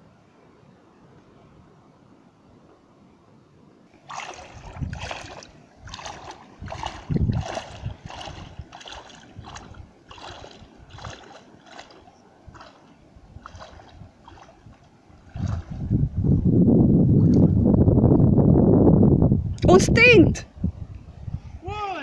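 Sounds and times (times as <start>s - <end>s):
legs wading through shallow water: 3.9s - 16.2s.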